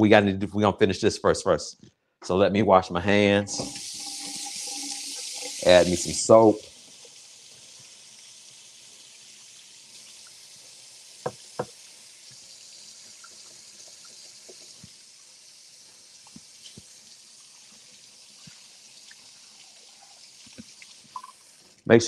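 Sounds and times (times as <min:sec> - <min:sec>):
tap running into sink: 0:03.5 - 0:05.7, 0:11.2 - 0:12.4.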